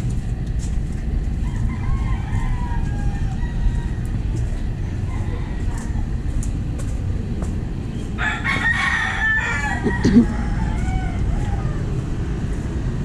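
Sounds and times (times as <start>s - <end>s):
low background rumble: 0.0s - 13.0s
rooster crowing: 1.4s - 6.4s, 8.2s - 12.1s.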